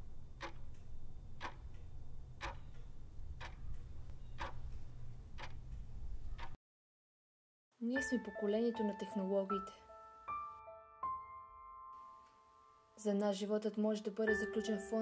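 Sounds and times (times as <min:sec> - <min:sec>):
low steady hum: 0:00.0 - 0:06.4
clock ticking: 0:00.3 - 0:06.6.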